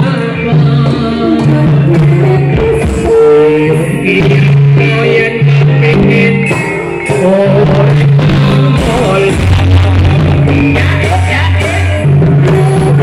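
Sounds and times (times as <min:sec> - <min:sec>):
deep bass notes: 0:00.0 - 0:13.0
person singing: 0:00.0 - 0:13.0.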